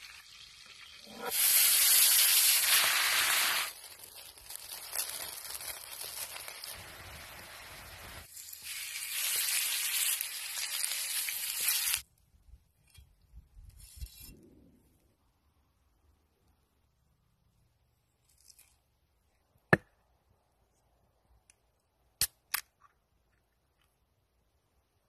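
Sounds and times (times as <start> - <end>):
food sizzling in hot pans: 0.0 - 12.0
potatoes searing on grill pan: 0.0 - 12.0.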